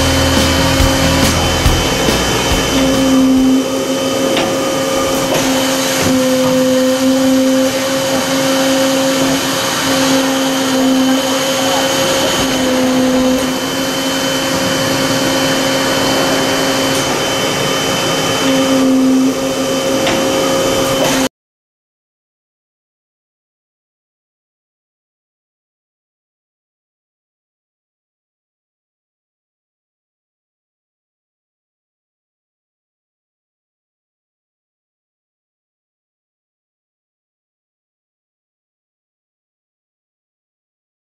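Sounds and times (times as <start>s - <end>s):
press mechanical drone: 0.0s - 21.3s.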